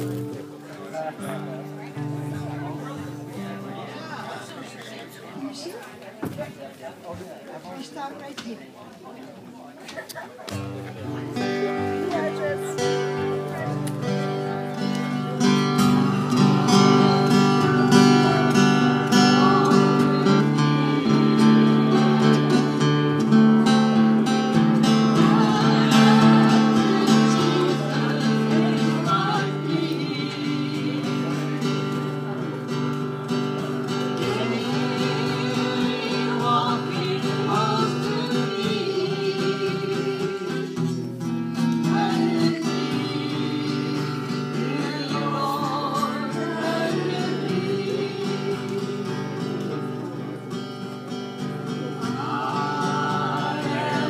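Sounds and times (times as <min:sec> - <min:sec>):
acoustic guitar strumming: 0:00.0 - 0:04.5, 0:10.5 - 0:54.0
person singing: 0:15.2 - 0:32.6, 0:33.6 - 0:50.4, 0:51.8 - 0:54.0.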